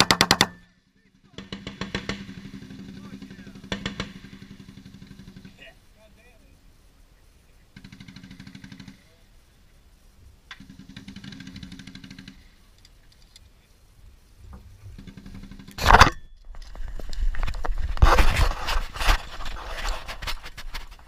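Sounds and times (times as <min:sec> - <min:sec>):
machine-gun bursts: 0:00.0 - 0:00.6, 0:07.8 - 0:09.0
scraping and rustling of handling: 0:14.5 - 0:21.0.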